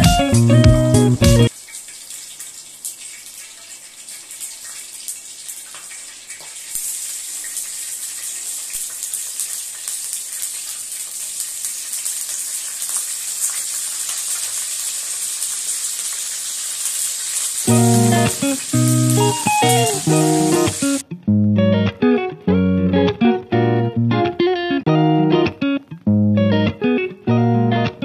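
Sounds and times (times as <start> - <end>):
hot oil sizzling: 0.0 - 21.1.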